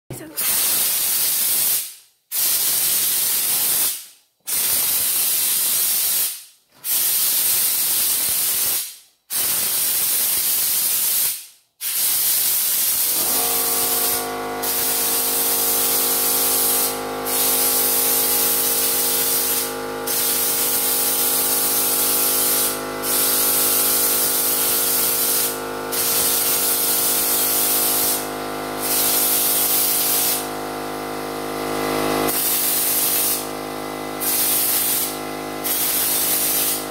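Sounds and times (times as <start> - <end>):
spray gun hissing: 11.1 - 30.4, 32.3 - 33.5, 34.2 - 36.9
air compressor motor hum: 13.0 - 36.9.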